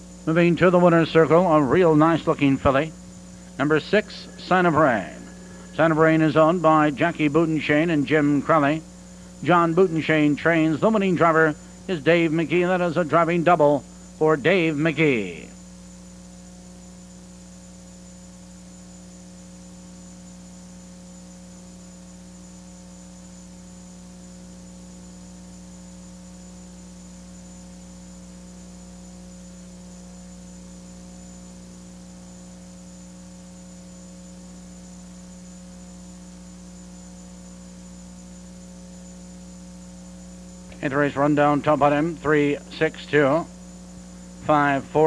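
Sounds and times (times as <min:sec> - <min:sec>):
faint hiss: 0:00.0 - 0:19.2
electrical mains hum: 0:00.0 - 0:45.0.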